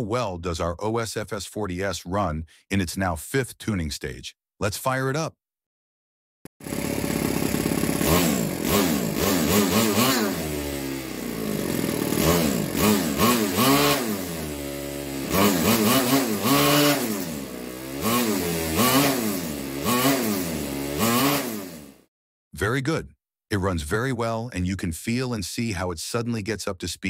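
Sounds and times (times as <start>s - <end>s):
model engine revving: 6.6s - 22.0s.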